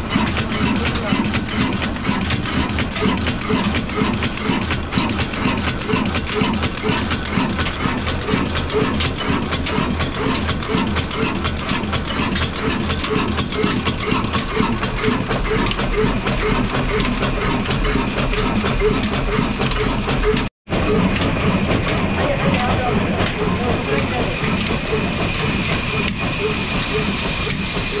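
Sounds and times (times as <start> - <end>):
diesel engine clattering: 0.0 - 28.0.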